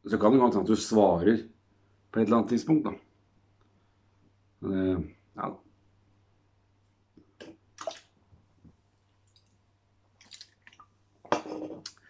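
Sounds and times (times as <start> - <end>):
faint wet clicks and smacks: 7.1 - 11.0.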